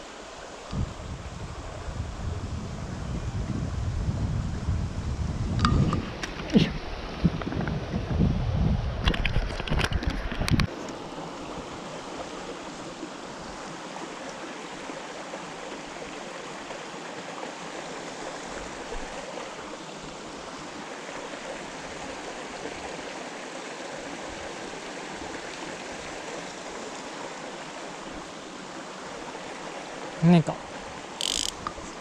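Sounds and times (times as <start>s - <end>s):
stream rushing over stones: 9.0s - 32.0s.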